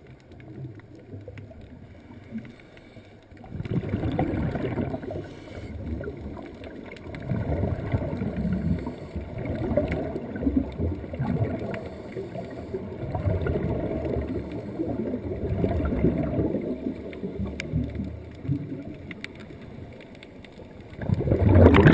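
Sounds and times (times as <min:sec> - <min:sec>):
faint clicks: 0:00.0 - 0:21.9
underwater churning rumble: 0:03.4 - 0:19.9, 0:20.8 - 0:21.9.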